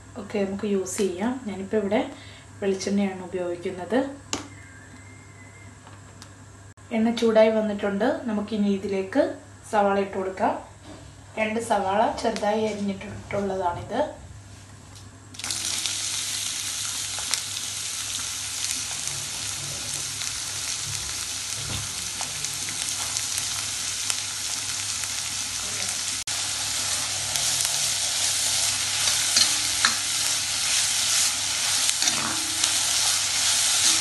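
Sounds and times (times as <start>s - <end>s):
onions sizzling in oil: 15.4s - 34.0s.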